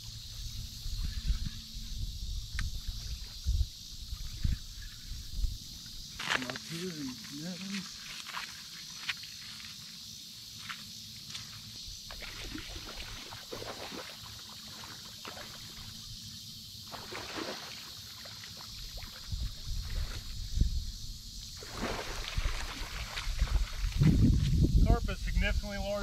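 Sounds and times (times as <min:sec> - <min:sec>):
fish splashing in shallow water: 0:12.0 - 0:16.2, 0:16.8 - 0:20.6, 0:21.5 - 0:24.4.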